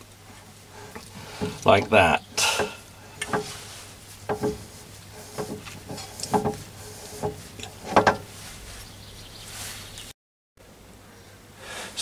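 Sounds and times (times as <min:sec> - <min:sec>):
metallic clicks and rubbing: 0:00.8 - 0:08.4.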